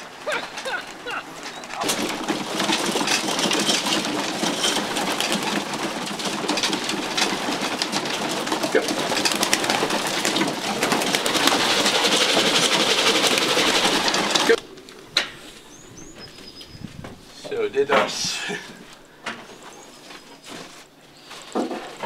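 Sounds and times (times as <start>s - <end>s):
wings flapping: 0.0s - 15.6s
pigeons cooing: 0.0s - 17.4s
birds tapping in wooden crates: 0.0s - 18.1s.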